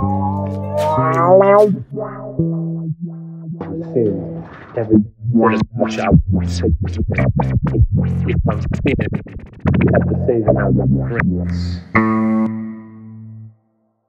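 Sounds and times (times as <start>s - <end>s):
steady low bass: 0.0s - 12.5s
fast synthesizer notes: 1.0s - 11.6s.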